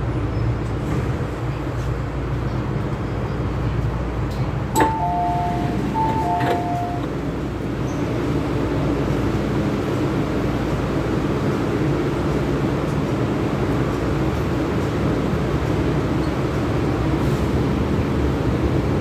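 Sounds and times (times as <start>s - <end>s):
train running rumble: 0.0s - 19.0s
two-tone door chime: 4.8s - 7.2s.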